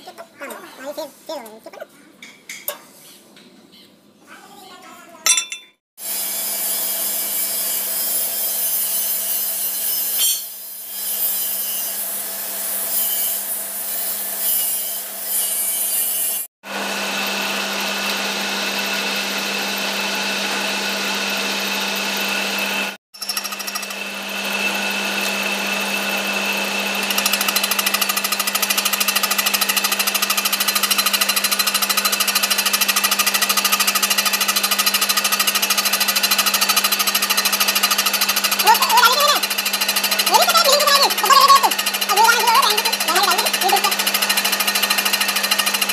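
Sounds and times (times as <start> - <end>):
milling machine cutting steel: 5.3 - 45.9
motor hum: 16.7 - 45.9.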